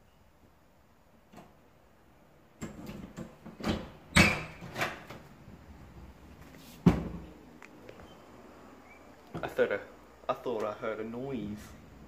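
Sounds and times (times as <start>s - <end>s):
door clunks and knocks: 6.8s - 7.4s.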